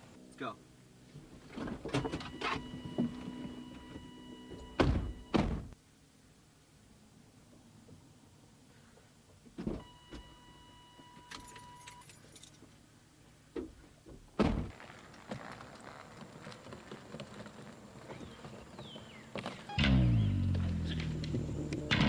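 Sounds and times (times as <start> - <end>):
car door shutting: 1.5 - 5.8, 13.6 - 14.7
keys jangling: 11.3 - 12.7
steady electronic tone: 19.7 - 22.0.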